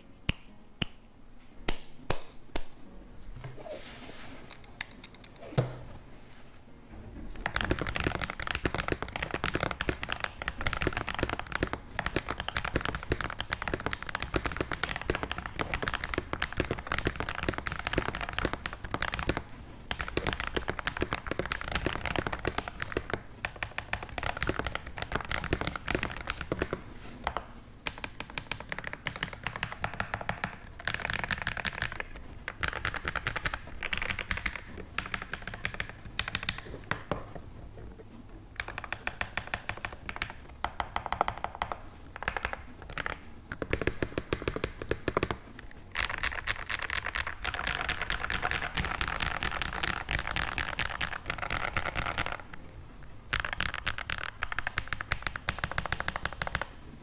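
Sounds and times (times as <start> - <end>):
mechanical keyboard typing: 7.4 - 37.3, 38.6 - 52.6, 53.3 - 56.8.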